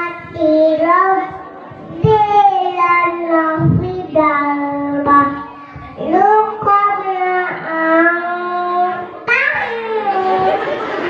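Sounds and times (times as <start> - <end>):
boy chanting recitation: 0.0 - 10.6.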